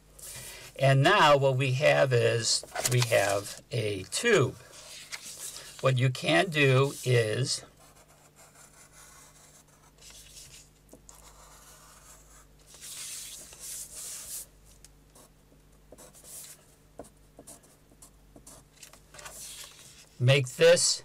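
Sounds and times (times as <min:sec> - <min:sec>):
pencil scratching on paper: 0:07.8 - 0:14.5.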